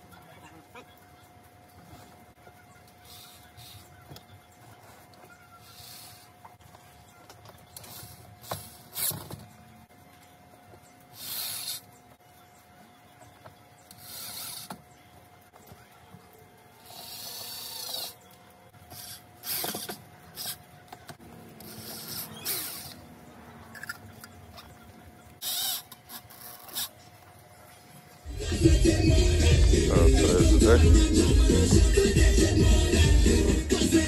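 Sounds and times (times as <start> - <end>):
power drill whining: 13.9 - 14.8, 21.6 - 23.0, 25.4 - 26.8.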